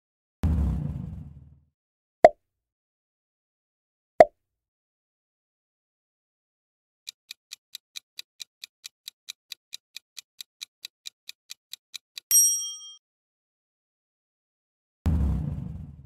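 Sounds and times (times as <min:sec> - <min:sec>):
clock-like timer ticking: 0:07.1 - 0:12.4
bright ringing chime: 0:12.3 - 0:13.0.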